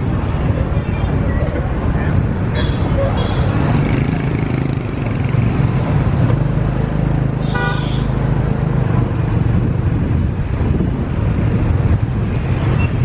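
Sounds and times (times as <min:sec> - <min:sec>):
road and wind noise: 0:00.0 - 0:13.0
vehicle horn toot: 0:07.4 - 0:08.1.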